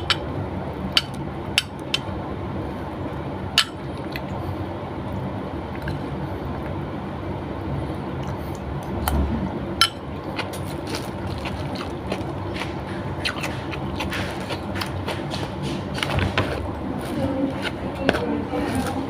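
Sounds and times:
background hum: 0:00.0 - 0:19.0
person chewing: 0:10.1 - 0:19.0.

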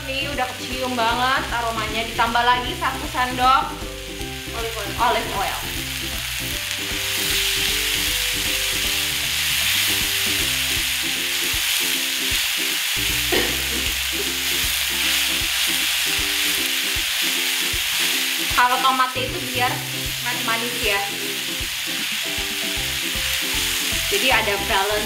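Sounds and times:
food sizzling in oil: 0:00.0 - 0:25.0.

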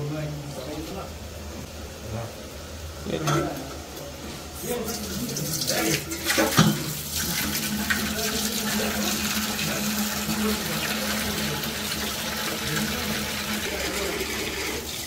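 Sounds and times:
knife being rinsed: 0:04.6 - 0:15.0
tap water splashing into steel bowl: 0:05.6 - 0:08.4.

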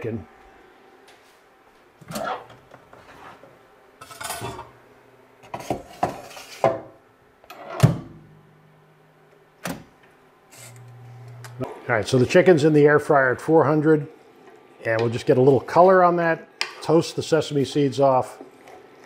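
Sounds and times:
air fryer humming: 0:07.0 - 0:18.2.

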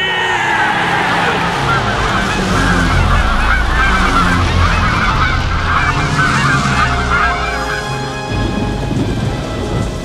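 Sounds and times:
geese honking: 0:00.0 - 0:09.0
low steady rumble: 0:01.7 - 0:08.9.

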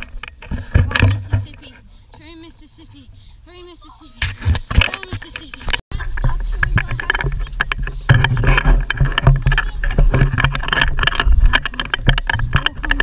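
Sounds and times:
wind rumbling on microphone: 0:04.2 - 0:13.0.

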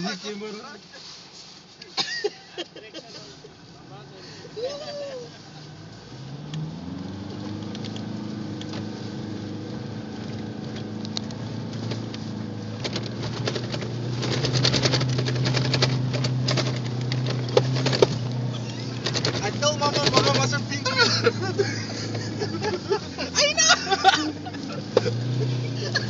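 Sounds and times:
vehicle engine revving: 0:03.6 - 0:26.0
sharp clicks and rattles: 0:07.3 - 0:08.9, 0:10.2 - 0:26.0.

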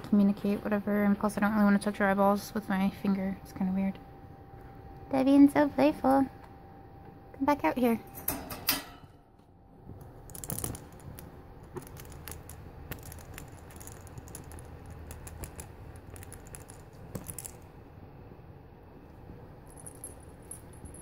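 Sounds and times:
cat litter clicking and rattling: 0:10.3 - 0:17.6.

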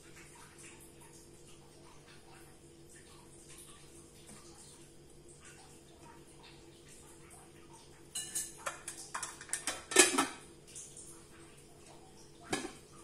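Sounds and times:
metal kitchenware clinks and scrapes: 0:08.2 - 0:10.4.

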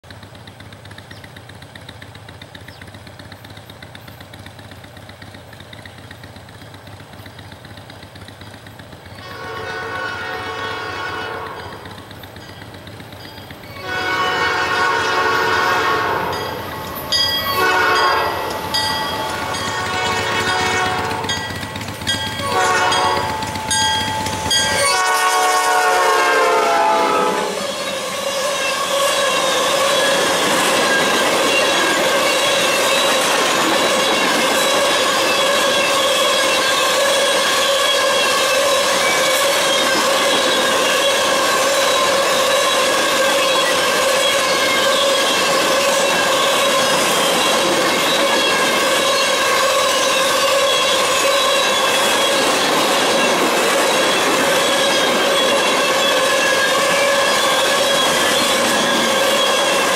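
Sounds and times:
diesel locomotive rumble: 0:00.0 - 0:59.9
steel wheels clattering: 0:00.0 - 0:59.9
train air horn blasts: 0:09.2 - 0:12.0, 0:13.8 - 0:16.4, 0:17.5 - 0:18.7, 0:19.3 - 0:21.4, 0:22.4 - 0:23.4, 0:24.5 - 0:30.0.

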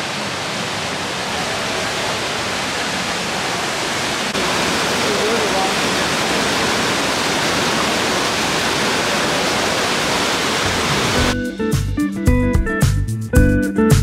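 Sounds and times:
waterfall pouring: 0:00.0 - 0:11.4
music with plucked notes and beat: 0:11.3 - 0:14.0.

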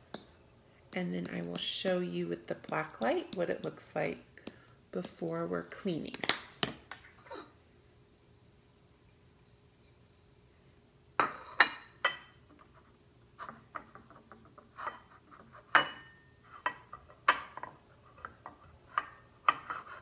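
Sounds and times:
ceramic plates clinking: 0:11.2 - 0:12.4.

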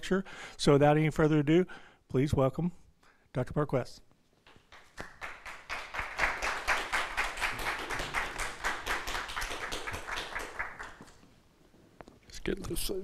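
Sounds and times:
audience applauding: 0:04.6 - 0:11.2.

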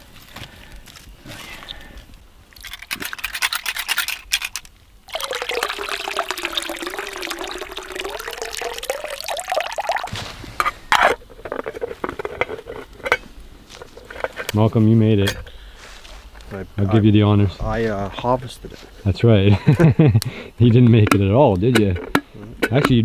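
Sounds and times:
water pouring onto wet leaves: 0:05.1 - 0:10.2.

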